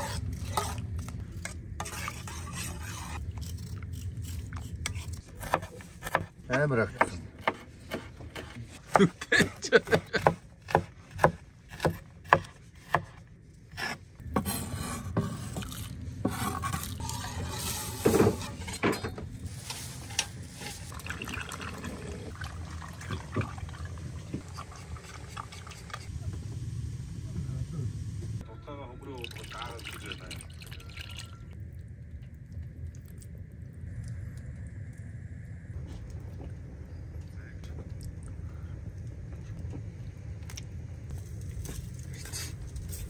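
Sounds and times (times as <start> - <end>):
knife chopping on wooden board: 10.2 - 13.2
thick liquid sloshing and pouring: 20.4 - 26.1.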